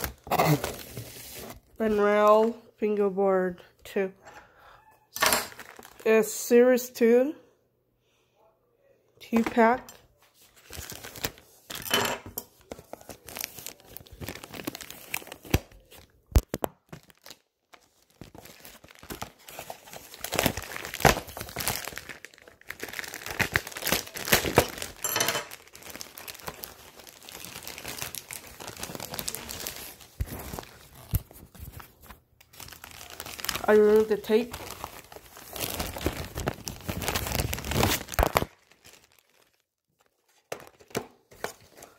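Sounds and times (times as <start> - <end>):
plastic wrapping crinkling: 0.0 - 2.0, 5.5 - 6.2, 10.4 - 11.8, 12.6 - 41.9.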